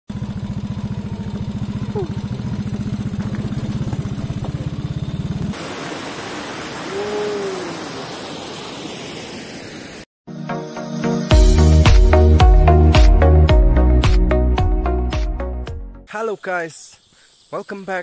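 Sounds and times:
engine idling: 0.1s - 5.6s
waterfall rushing over rocks: 5.5s - 10.1s.

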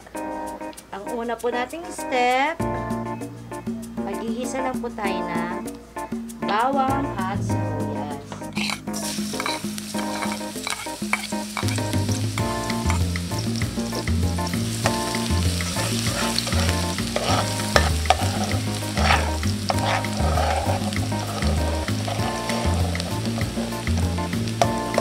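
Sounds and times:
metal spoon scraping a pot: 8.5s - 11.8s, 14.9s - 23.6s
garlic sizzling in hot oil: 8.5s - 25.0s.

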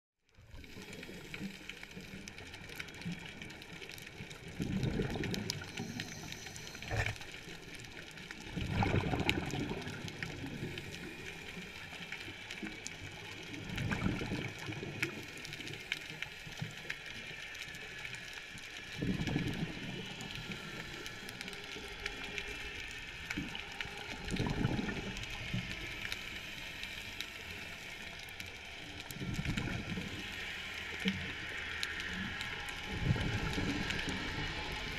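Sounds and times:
faint crackling with tiny clicks: 0.3s - 34.9s
bubbly diver exhalation: 6.8s - 7.3s.

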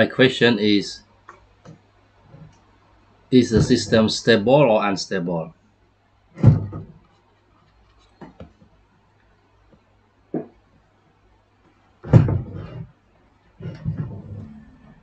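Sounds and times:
faint low hum: 0.0s - 15.0s
knocks and thumps: 3.4s - 4.2s, 6.4s - 7.2s, 8.1s - 8.7s, 9.7s - 10.6s, 12.0s - 12.9s, 13.6s - 14.9s.

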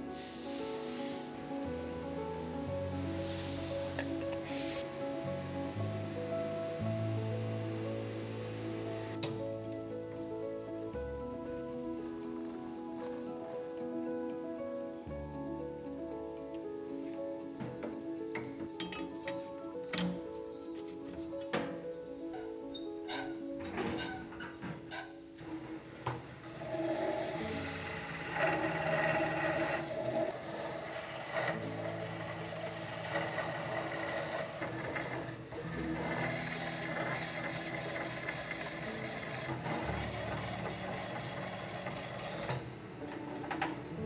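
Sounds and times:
stone grinding a spinning pot: 26.4s - 42.6s.

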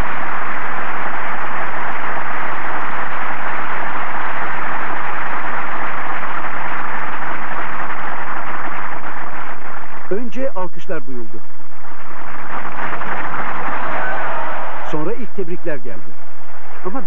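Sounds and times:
large crowd applauding: 0.0s - 10.1s, 11.9s - 15.3s.

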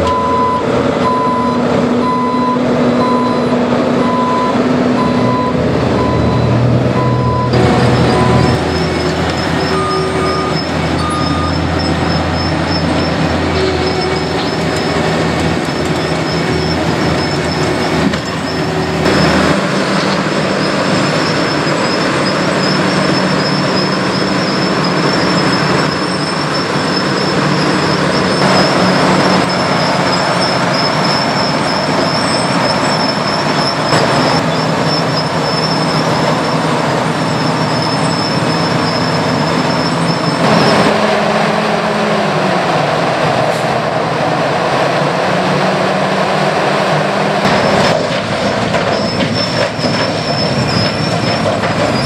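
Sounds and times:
loader engine running: 0.0s - 52.0s
milling machine grinding asphalt: 7.5s - 41.4s.

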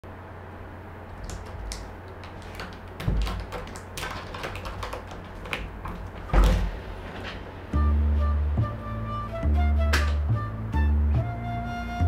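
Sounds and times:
cat scratching at door: 1.1s - 7.3s
dull knock on door: 3.0s - 6.8s.

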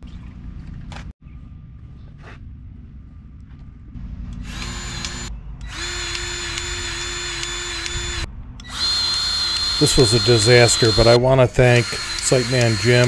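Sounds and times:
cordless power tool motor: 4.3s - 13.0s.

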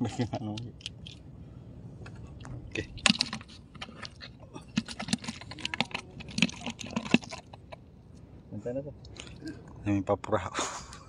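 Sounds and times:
fish flapping in a bucket: 3.0s - 7.7s.

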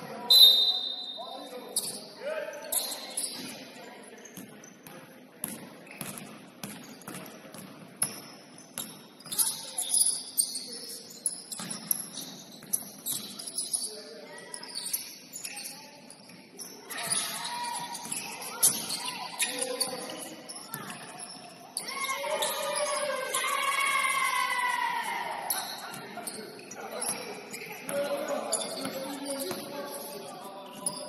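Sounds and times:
sneakers squeaking: 0.0s - 24.5s, 25.4s - 31.0s
basketball bouncing: 5.4s - 9.0s.

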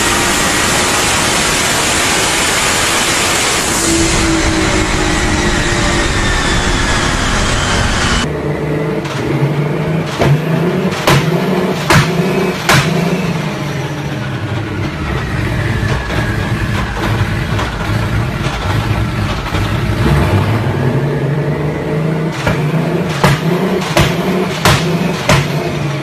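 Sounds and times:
faint whine: 0.0s - 9.0s
car engine running: 0.0s - 26.0s.

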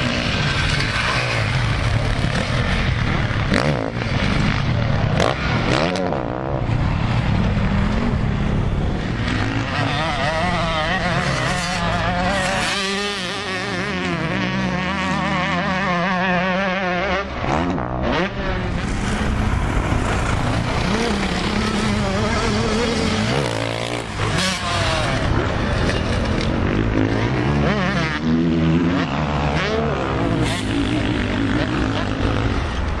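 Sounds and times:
motocross engines revving: 0.0s - 33.0s.

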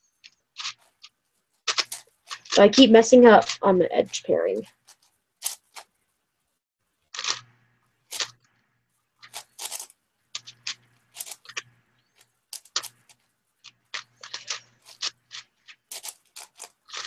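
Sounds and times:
speed cube clicking: 7.2s - 7.5s, 9.2s - 11.8s, 12.6s - 13.2s, 13.9s - 17.0s.

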